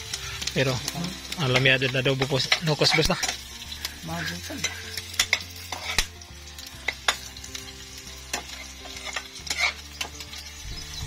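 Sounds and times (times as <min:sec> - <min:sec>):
garlic and onions sizzling: 0:00.0 - 0:11.0
metal ladle scraping pan: 0:04.6 - 0:06.2, 0:08.3 - 0:10.2.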